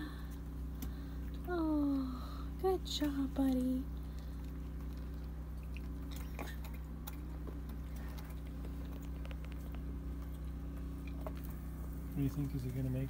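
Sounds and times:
steady low hum: 0:00.0 - 0:13.0
goat chewing pellets: 0:04.0 - 0:12.7.

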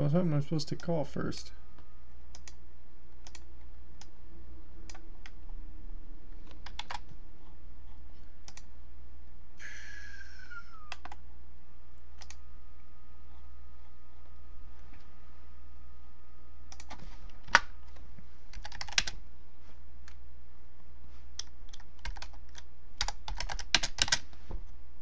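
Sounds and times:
low electrical hum: 0:00.0 - 0:25.0
keyboard and mouse clicks: 0:02.3 - 0:02.6, 0:03.2 - 0:04.2, 0:04.8 - 0:05.5, 0:06.4 - 0:08.7, 0:10.9 - 0:11.2, 0:12.2 - 0:12.4, 0:16.7 - 0:19.2, 0:21.3 - 0:24.4.

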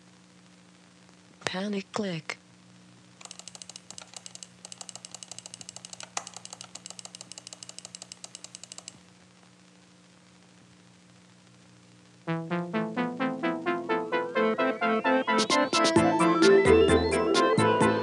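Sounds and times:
faint steady hum: 0:00.0 - 0:15.1
mouse button clicking rapidly: 0:03.2 - 0:09.0
music: 0:12.3 - 0:18.0.

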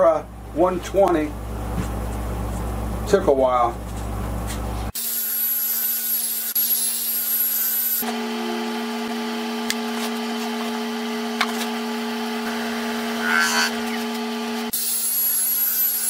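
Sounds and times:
drill whine with sanding hiss: 0:05.0 - 0:09.5, 0:12.4 - 0:14.1, 0:14.7 - 0:16.0
lathe humming: 0:08.0 - 0:14.8.

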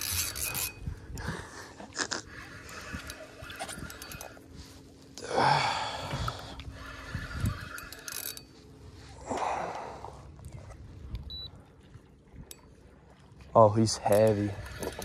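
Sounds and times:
person exhaling with strain: 0:05.2 - 0:07.6.

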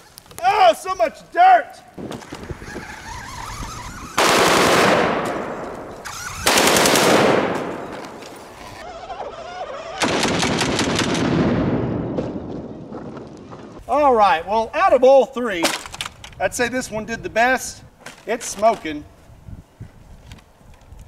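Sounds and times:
rifle firing rapid bursts: 0:04.2 - 0:05.2, 0:06.1 - 0:07.6, 0:10.0 - 0:11.2.

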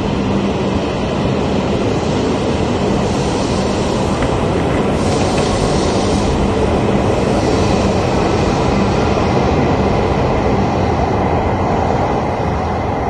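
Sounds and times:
trains rumbling past: 0:00.0 - 0:13.0.

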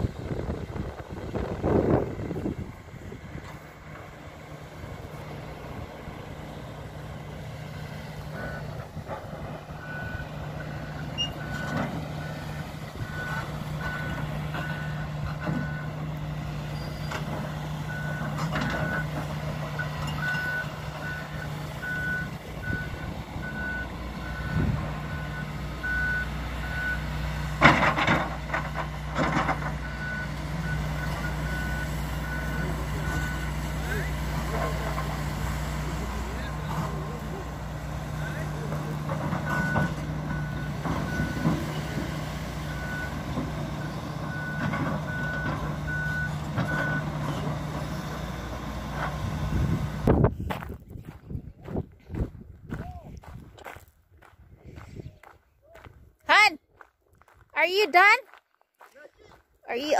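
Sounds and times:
excavator diesel engine running: 0:00.0 - 0:56.5
warning alarm beeping: 0:29.8 - 0:34.2.

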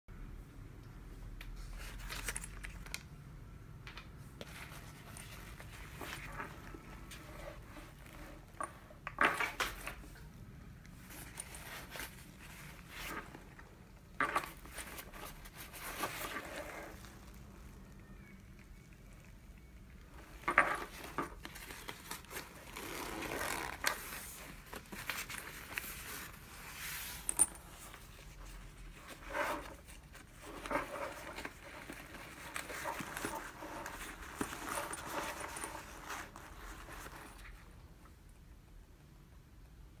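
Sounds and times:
fabric rustling and scraping: 0:04.3 - 0:17.8, 0:19.8 - 0:38.0.

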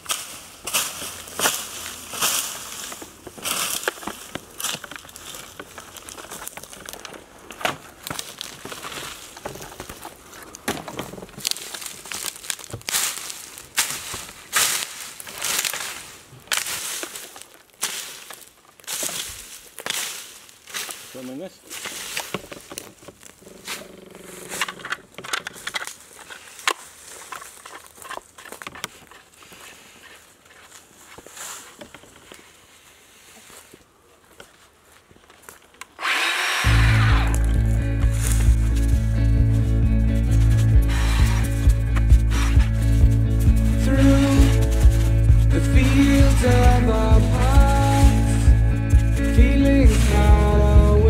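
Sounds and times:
rake scraping dry grass: 0:00.0 - 0:10.6, 0:11.2 - 0:33.8, 0:35.4 - 0:51.0
tools being handled: 0:23.8 - 0:29.3.

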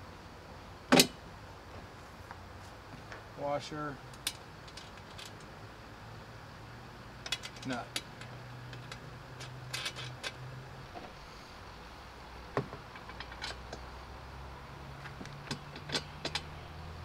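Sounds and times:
small metal clicks and taps: 0:07.2 - 0:10.4.

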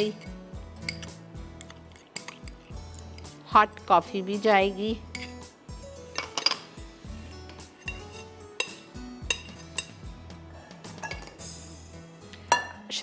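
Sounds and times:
utensils clinking on glass bowls: 0:00.0 - 0:03.4, 0:05.1 - 0:05.4, 0:06.1 - 0:06.8, 0:07.5 - 0:11.5
soft background music: 0:00.0 - 0:13.0.

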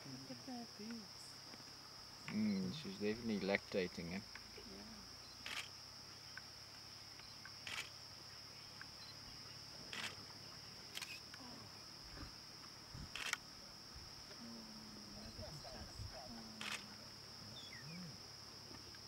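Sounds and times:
camera shutter clicking: 0:05.4 - 0:05.7, 0:13.2 - 0:13.4.

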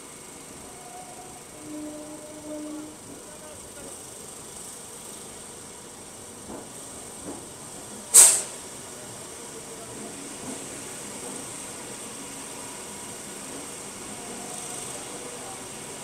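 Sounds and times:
compressed air hissing: 0:08.1 - 0:08.6.

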